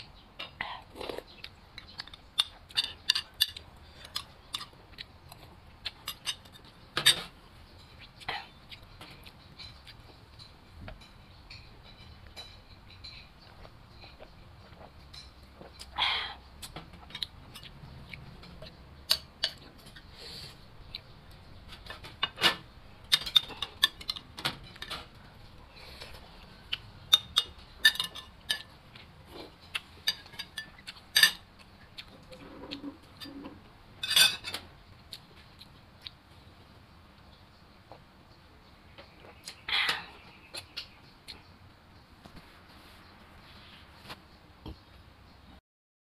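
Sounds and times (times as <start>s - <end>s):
spoon clinking against bowls: 1.9s - 4.7s, 5.8s - 8.0s, 27.1s - 28.8s, 29.6s - 31.5s, 34.0s - 34.6s.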